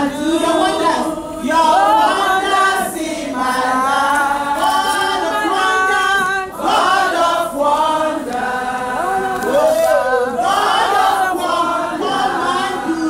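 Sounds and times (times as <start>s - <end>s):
choir singing long notes: 0.0s - 13.0s.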